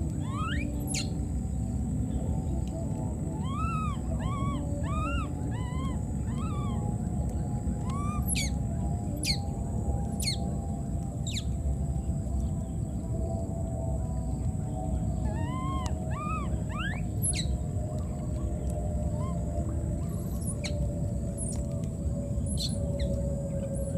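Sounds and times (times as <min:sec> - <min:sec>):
low background noise: 0:00.0 - 0:23.9
baby monkey crying: 0:00.2 - 0:01.0, 0:03.4 - 0:06.8, 0:07.9 - 0:08.5, 0:15.3 - 0:17.5
monkey squeals: 0:00.2 - 0:01.0, 0:03.4 - 0:06.8, 0:15.3 - 0:17.4.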